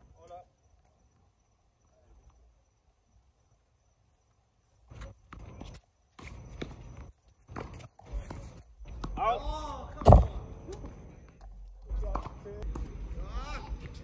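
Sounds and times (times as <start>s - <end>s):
scuffing footsteps on hard court: 4.9s - 14.0s
tennis ball hits: 7.5s - 10.9s.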